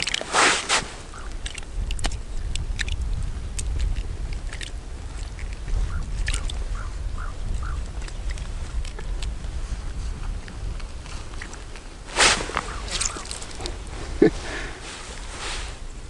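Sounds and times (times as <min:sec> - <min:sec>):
snow and ice crunching: 0:00.0 - 0:01.6, 0:07.9 - 0:15.9
wind rumbling on microphone: 0:00.0 - 0:16.0.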